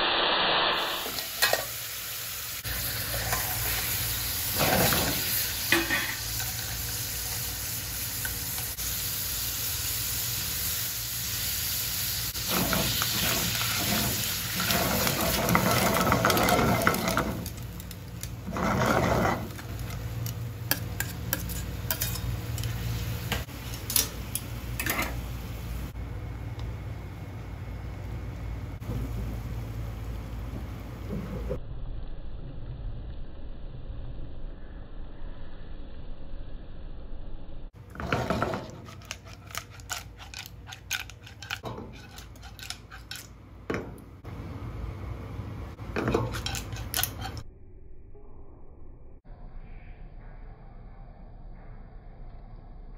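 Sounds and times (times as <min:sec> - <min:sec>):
sauce sizzling: 0:00.0 - 0:26.0
metal tongs clicking and scraping: 0:19.5 - 0:22.8, 0:23.7 - 0:25.1, 0:38.6 - 0:43.4, 0:46.0 - 0:47.4.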